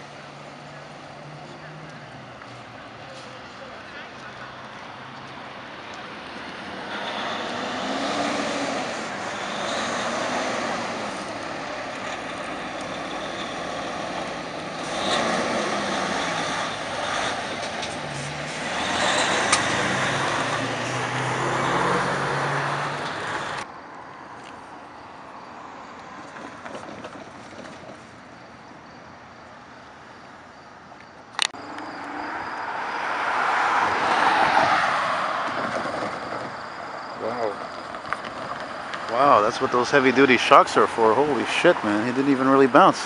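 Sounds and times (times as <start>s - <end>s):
traffic crossing railway crossing: 0.0s - 23.7s, 31.4s - 43.0s
quiet street sound: 0.0s - 43.0s.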